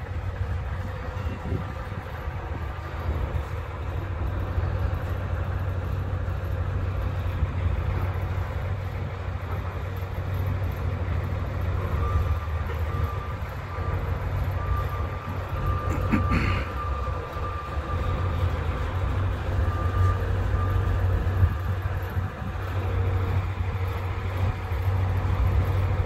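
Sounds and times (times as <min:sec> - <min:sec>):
diesel truck engine idling: 0:00.0 - 0:26.0.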